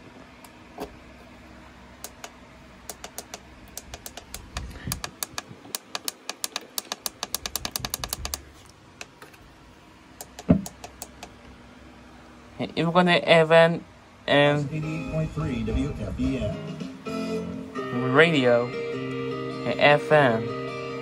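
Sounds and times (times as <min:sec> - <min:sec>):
plastic buttons clicking: 0:02.0 - 0:08.4, 0:10.2 - 0:11.3.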